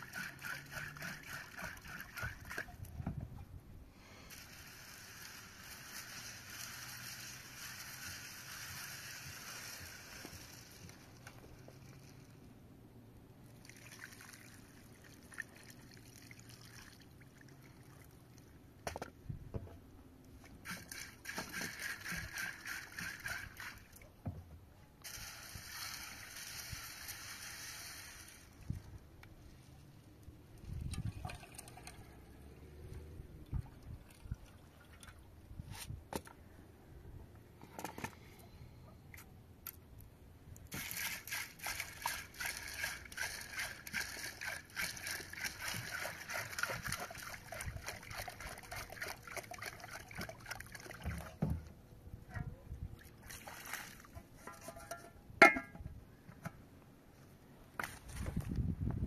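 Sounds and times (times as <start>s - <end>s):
pot knocking and scraping: 54.4s - 55.9s.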